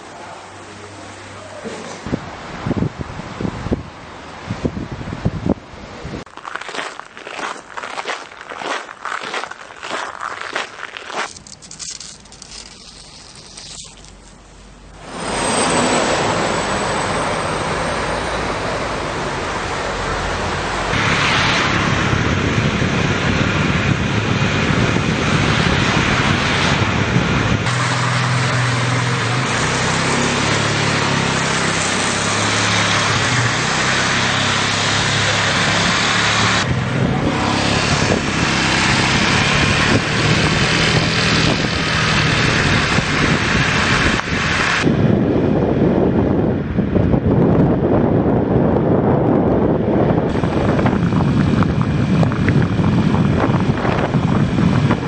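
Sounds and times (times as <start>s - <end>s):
traffic noise: 0.0s - 55.0s
heavy rain and stones falling: 6.3s - 14.2s.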